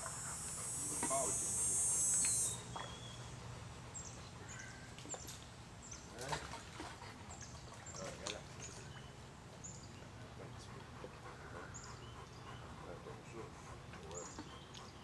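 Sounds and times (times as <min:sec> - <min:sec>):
steady low hum: 0:00.0 - 0:07.8
high bird chirps: 0:00.1 - 0:03.2
light water splashes: 0:02.1 - 0:03.3, 0:04.4 - 0:11.2.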